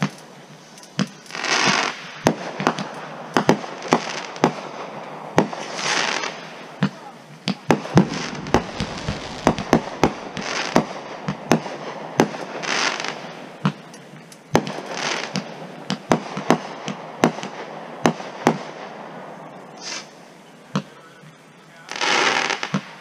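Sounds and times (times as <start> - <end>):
fireworks hiss: 5.6 - 13.5, 19.8 - 20.3
fireworks bangs: 7.4 - 13.5.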